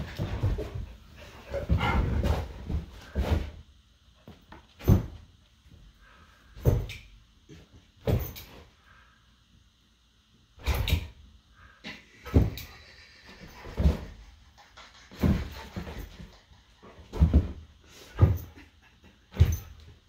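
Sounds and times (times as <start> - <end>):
dogs bumping and scuffling: 0.0 - 3.6, 13.4 - 20.0.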